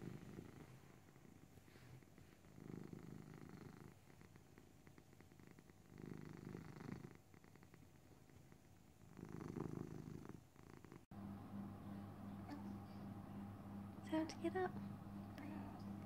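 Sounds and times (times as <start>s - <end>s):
cat purring: 0.0s - 16.0s.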